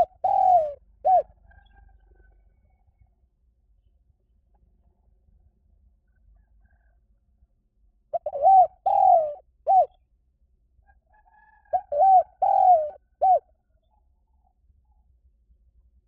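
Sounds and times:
dove cooing: 0.0 - 1.6, 8.1 - 10.0, 11.6 - 13.5.

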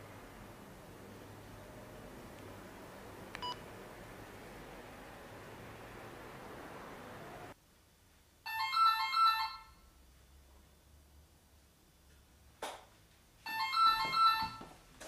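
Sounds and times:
phone ringing with electronic beeps: 8.5 - 9.9, 13.5 - 14.6.

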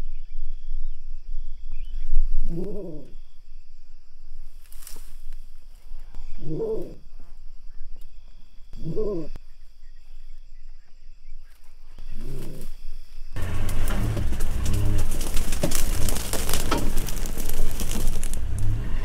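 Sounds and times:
insects droning: 0.0 - 19.0
low animal call: 2.4 - 3.4, 6.1 - 7.4, 8.7 - 9.6.

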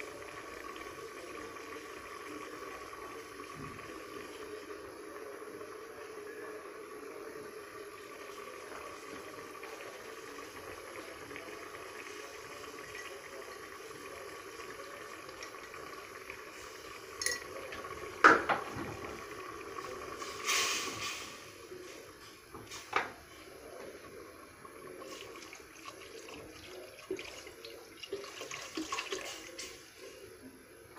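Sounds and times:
pot of liquid boiling: 0.0 - 30.9
kitchenware clattering: 17.2 - 17.6.

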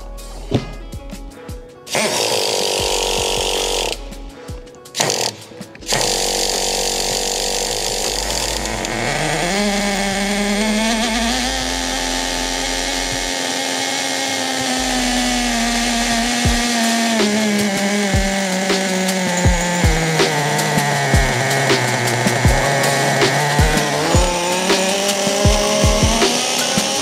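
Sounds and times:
small nitro engine revving: 1.9 - 4.4, 5.0 - 27.0.

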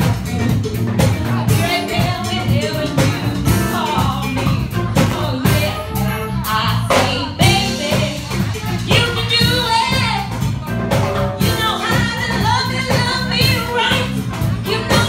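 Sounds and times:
live band playing: 0.0 - 15.0
woman singing lead: 0.0 - 15.0.

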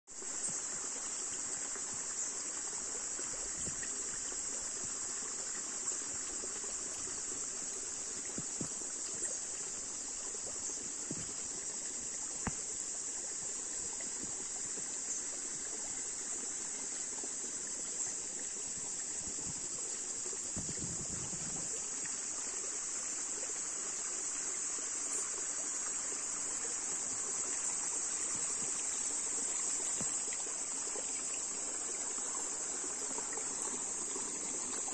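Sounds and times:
insects droning: 0.1 - 34.9
stream trickling over stones: 0.1 - 34.9.

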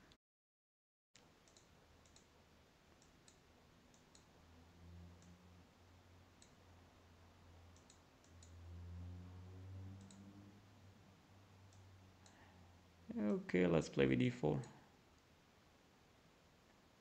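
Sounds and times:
computer mouse clicks: 1.2 - 4.3, 5.2 - 5.4, 6.4 - 6.6, 7.7 - 8.6, 10.0 - 10.3, 11.7 - 12.4
faint low hum: 1.2 - 17.0.

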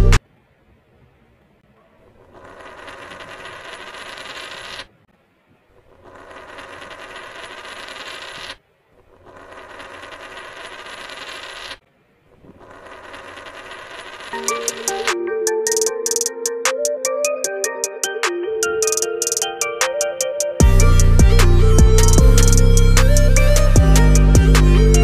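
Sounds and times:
toy cars whirring and clicking: 2.4 - 4.9, 6.0 - 8.6, 9.2 - 11.8, 12.6 - 15.1.

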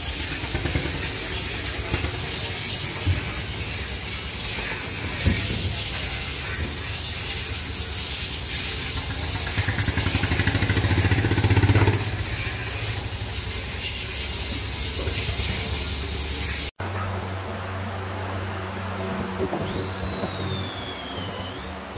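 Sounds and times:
engine running with hiss: 0.0 - 21.9.

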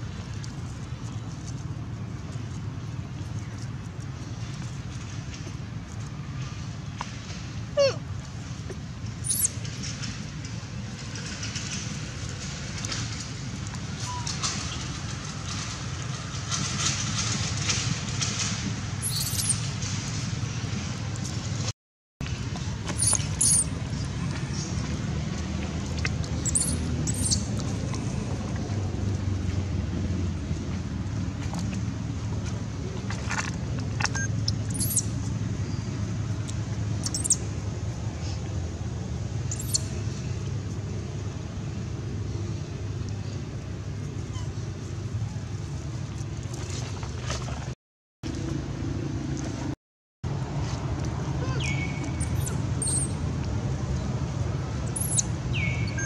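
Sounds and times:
low outdoor rumble: 0.0 - 56.0
infant monkey squeal: 7.8 - 8.0, 9.3 - 9.5, 19.0 - 19.6, 23.0 - 23.7, 51.5 - 53.1
wind noise on microphone: 7.8 - 21.7
high-pitched chirps: 9.3 - 9.5, 19.0 - 19.6, 23.0 - 23.7, 26.5 - 27.4, 34.7 - 35.0, 37.0 - 37.4, 39.5 - 39.8, 54.9 - 56.0.

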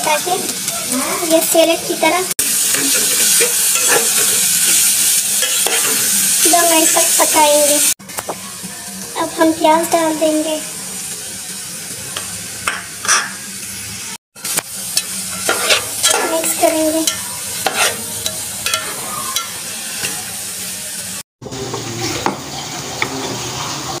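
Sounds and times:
vegetables sizzling in hot oil: 0.0 - 24.0
utensil scraping against pot: 2.7 - 6.0, 15.0 - 20.2.

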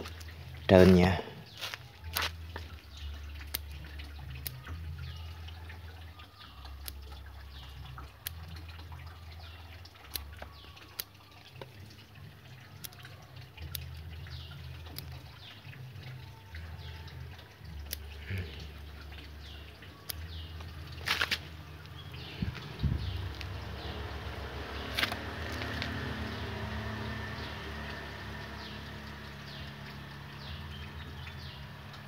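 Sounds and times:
faint drip-like sounds: 0.0 - 32.0
scissors snipping leaves: 1.6 - 4.6, 24.8 - 26.0
low hum: 11.8 - 32.0.

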